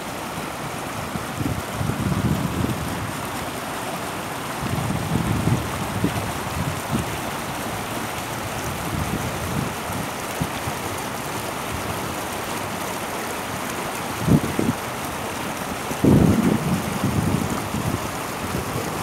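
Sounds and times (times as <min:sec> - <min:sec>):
stream water rippling: 0:00.0 - 0:19.0
wind buffeting microphone: 0:01.0 - 0:03.3, 0:04.6 - 0:07.6, 0:08.4 - 0:10.5, 0:14.2 - 0:14.9, 0:15.9 - 0:19.0.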